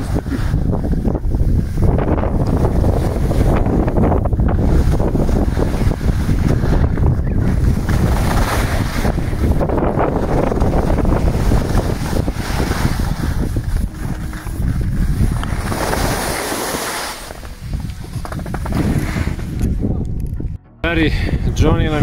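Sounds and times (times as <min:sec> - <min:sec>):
wind buffeting microphone: 0:00.0 - 0:22.0
skis hissing over snow: 0:11.3 - 0:19.4.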